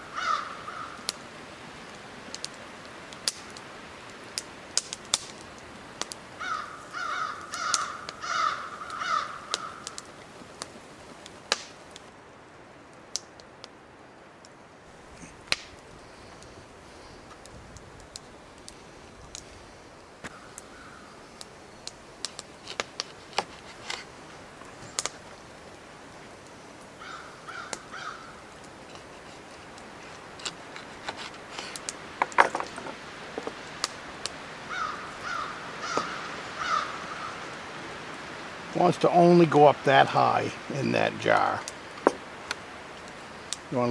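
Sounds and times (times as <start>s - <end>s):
bird calling: 6.4s - 10.1s, 27.0s - 28.4s, 34.6s - 37.6s.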